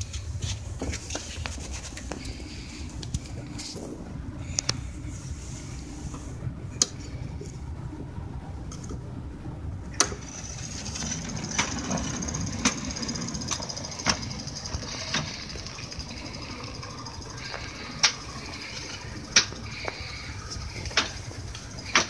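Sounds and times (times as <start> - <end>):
miniature locomotive rumble: 0.0 - 22.0
steady high whine: 0.0 - 22.0
wheels clicking on rails: 9.8 - 22.0.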